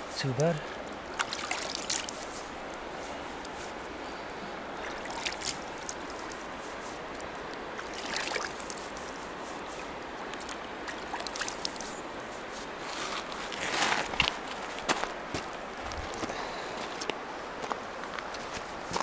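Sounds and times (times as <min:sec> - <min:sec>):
river running over stones: 0:00.0 - 0:19.0
water poured over hair: 0:01.2 - 0:02.5.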